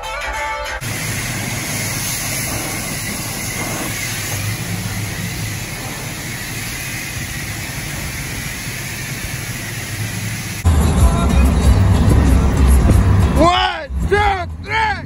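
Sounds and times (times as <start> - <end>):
pressure washer spraying water: 0.8 - 12.6
low hum: 0.8 - 13.3.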